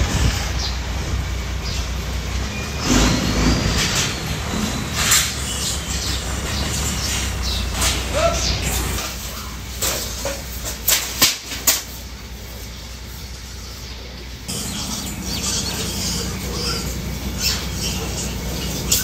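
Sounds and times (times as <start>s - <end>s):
piglets squealing and grunting: 14.5s - 19.0s.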